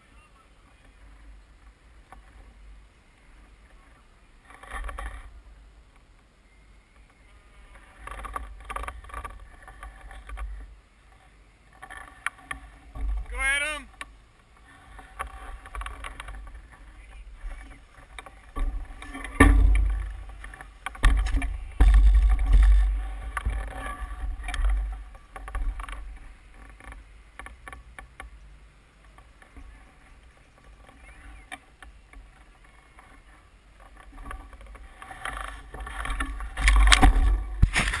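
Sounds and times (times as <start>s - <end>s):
bicycle knocking and rattling: 7.0s - 10.8s, 11.7s - 38.0s.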